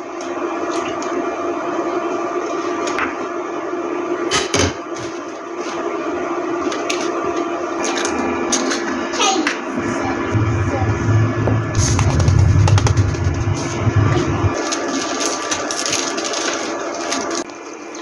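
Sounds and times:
steady low hum: 0:07.8 - 0:14.6.

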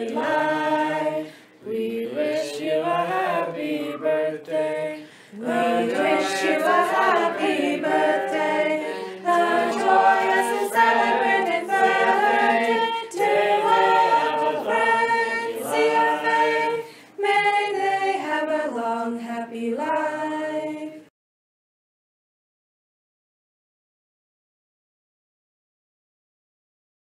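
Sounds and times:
group singing in harmony: 0:00.0 - 0:21.1.

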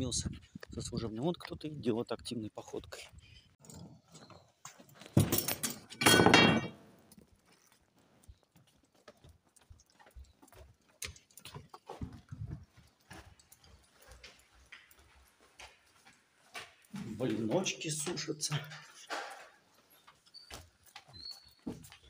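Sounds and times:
door clattering open: 0:05.1 - 0:06.8
footsteps on a hard floor: 0:11.9 - 0:22.0.

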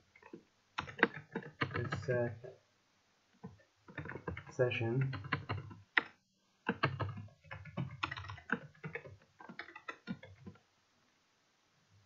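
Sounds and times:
typing on a computer keyboard: 0:00.2 - 0:02.2, 0:03.4 - 0:10.6.

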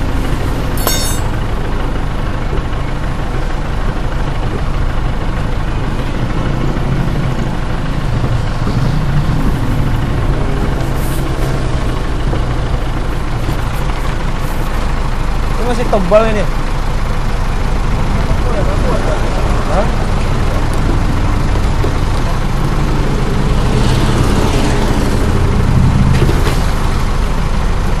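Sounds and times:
engine idling: 0:00.0 - 0:28.0
short metallic clatter: 0:00.7 - 0:01.4.

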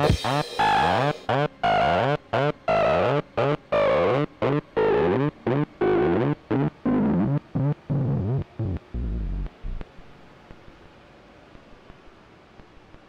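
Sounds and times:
distorted acid synthesizer sequence: 0:00.0 - 0:09.8.

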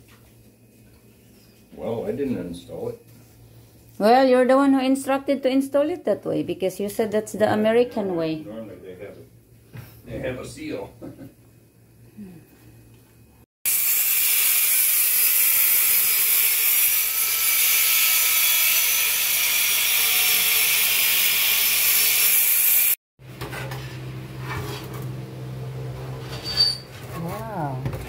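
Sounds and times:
power tool grinding: 0:13.7 - 0:23.0.

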